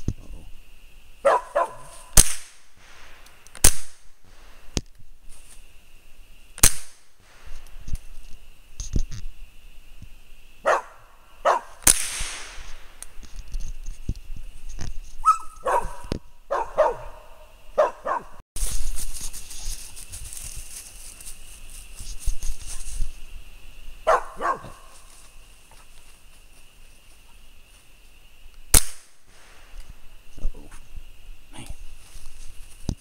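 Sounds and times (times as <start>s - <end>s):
dog barking: 1.2s - 2.1s, 10.6s - 11.8s, 15.2s - 18.4s, 24.1s - 25.0s.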